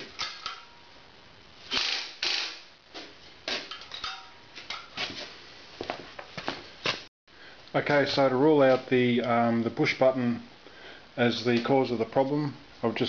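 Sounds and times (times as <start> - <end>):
scuffs on concrete floor: 2.9 - 3.7, 4.5 - 7.1.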